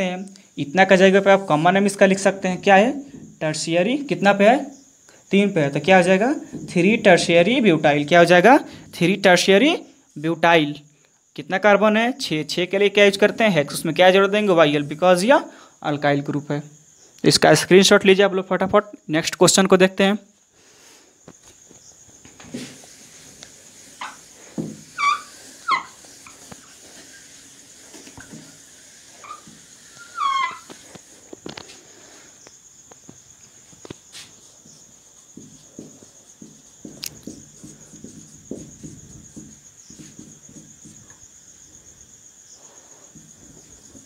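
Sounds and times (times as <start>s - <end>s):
whiteboard wiped with duster: 22.3s - 31.8s, 34.0s - 41.3s
marker scratching on whiteboard: 22.5s - 28.4s, 29.1s - 31.1s, 34.1s - 41.3s
short falling squeaks: 24.9s - 27.4s, 29.2s - 30.9s.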